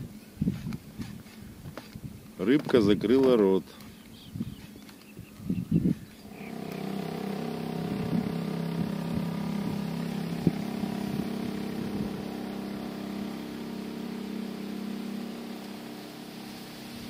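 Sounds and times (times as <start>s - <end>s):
motor engine running: 5.8s - 17.0s.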